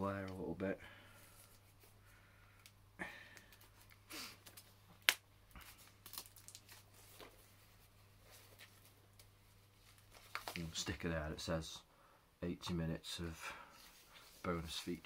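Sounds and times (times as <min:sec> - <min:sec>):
cellophane crinkling and ripping: 0:03.5 - 0:07.4, 0:08.5 - 0:10.9
sharp cellophane snap: 0:04.4 - 0:05.3.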